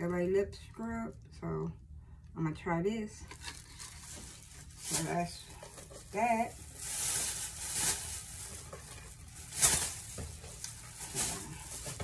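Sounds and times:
plastic bag rustling and crinkling: 0:03.3 - 0:12.0.

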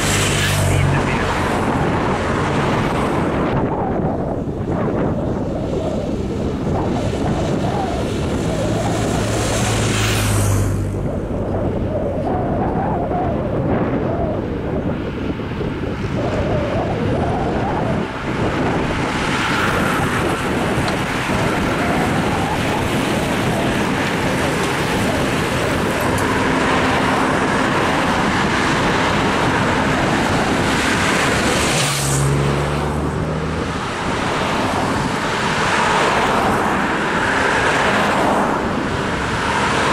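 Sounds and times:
cars driving past: 0:00.0 - 0:12.8, 0:13.5 - 0:39.9
cyclists rushing by: 0:00.0 - 0:39.9
motorbike passing: 0:00.0 - 0:39.9
wind on microphone: 0:00.0 - 0:39.9.

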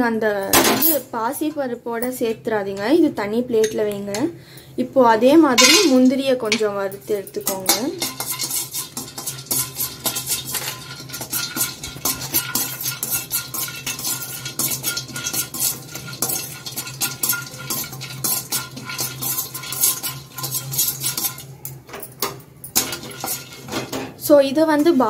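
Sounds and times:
spoon scraping almonds in metal pan: 0:05.6 - 0:06.8, 0:07.4 - 0:21.5, 0:22.8 - 0:23.9.

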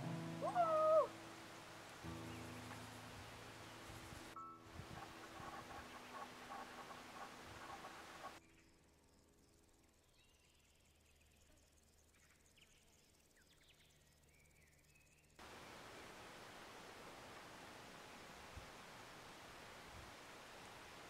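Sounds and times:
faint chirps: 0:00.0 - 0:16.4
faint hiss: 0:00.0 - 0:21.0.

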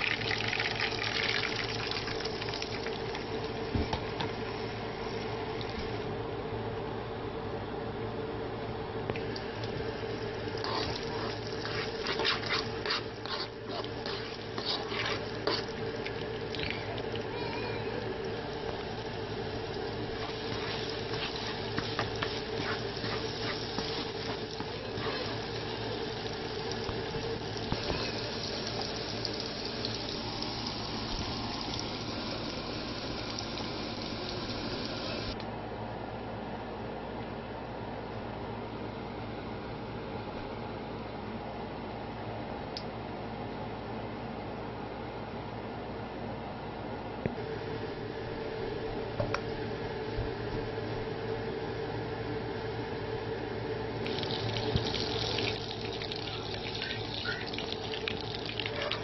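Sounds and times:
egg sizzling in oil: 0:09.3 - 0:17.3, 0:18.1 - 0:35.4, 0:54.0 - 0:58.8
spatula scraping a pan: 0:10.6 - 0:15.8, 0:20.2 - 0:25.4.

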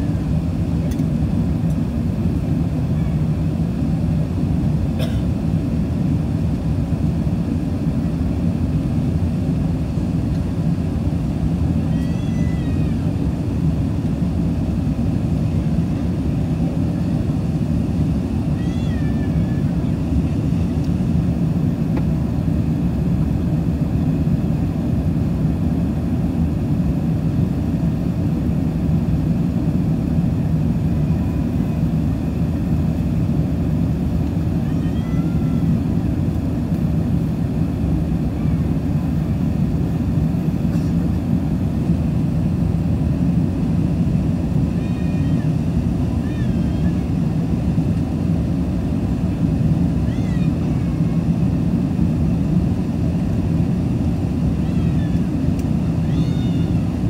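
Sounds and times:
airplane cabin engine rumble: 0:00.0 - 0:57.0
faint high-pitched cries: 0:02.8 - 0:03.3, 0:11.8 - 0:13.2, 0:18.4 - 0:21.0, 0:34.5 - 0:36.2, 0:38.2 - 0:38.9, 0:40.7 - 0:41.0, 0:44.7 - 0:47.2, 0:50.0 - 0:51.4, 0:54.4 - 0:57.0.

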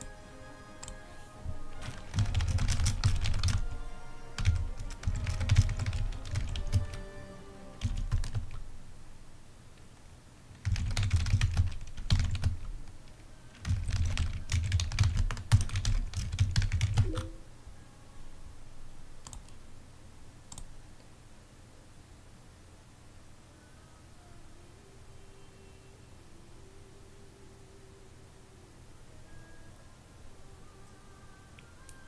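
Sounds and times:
typing on keyboard: 0:01.7 - 0:03.8, 0:04.4 - 0:07.0, 0:07.8 - 0:08.6, 0:10.6 - 0:17.4, 0:19.2 - 0:19.6.

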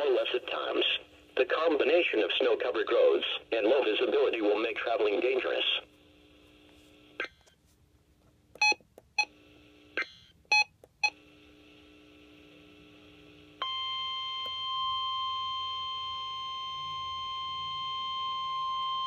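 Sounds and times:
steady warning alarm tone: 0:13.6 - 0:19.0.

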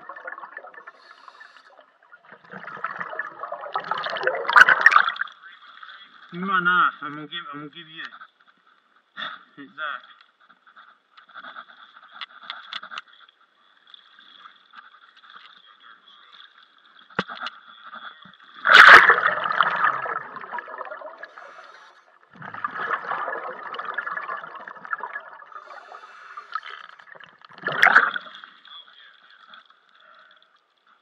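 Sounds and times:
underwater gurgling and bubbling: 0:00.0 - 0:05.2, 0:18.6 - 0:28.5
pool water splashing: 0:02.1 - 0:05.3, 0:18.6 - 0:29.1.

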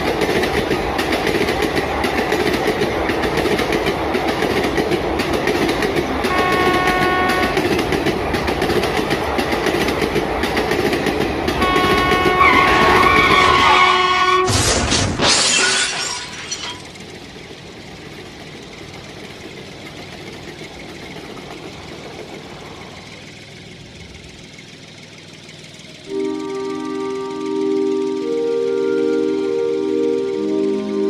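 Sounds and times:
toy train electronic horn: 0:06.2 - 0:07.6, 0:11.6 - 0:14.5, 0:26.0 - 0:31.0
toy crash: 0:14.4 - 0:17.0
music with sustained tones: 0:26.0 - 0:31.0.

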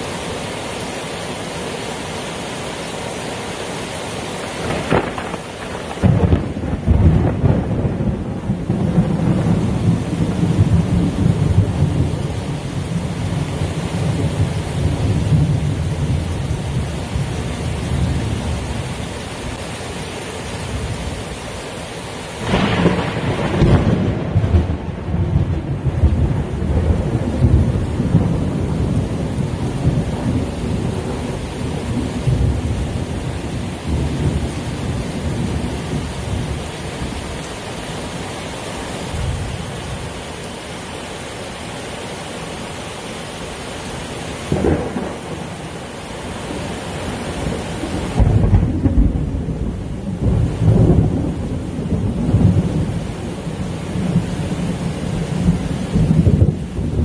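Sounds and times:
heavy rain: 0:00.0 - 0:57.0
thunder clap: 0:04.6 - 0:10.0, 0:22.4 - 0:28.4
rolling thunder: 0:04.6 - 0:12.3, 0:22.4 - 0:32.8, 0:44.5 - 0:45.5, 0:47.4 - 0:53.0, 0:55.4 - 0:57.0.

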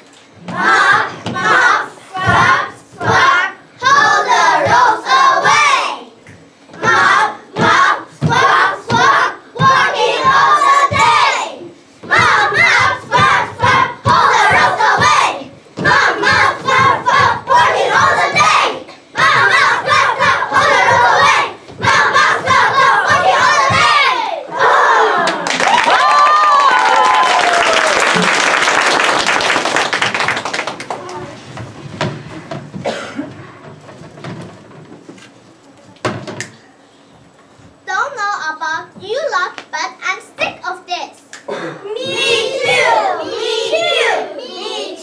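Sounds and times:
children shouting in unison: 0:17.1 - 0:28.0.

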